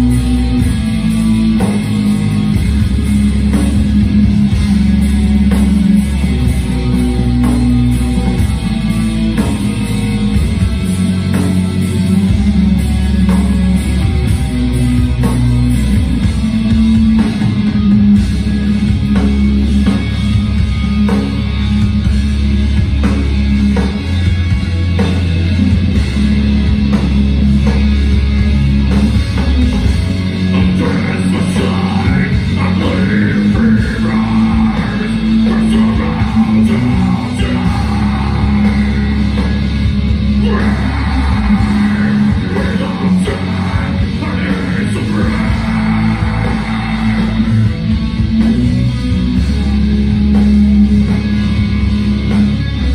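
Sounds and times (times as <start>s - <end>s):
live metal band playing loud: 0.0s - 52.9s.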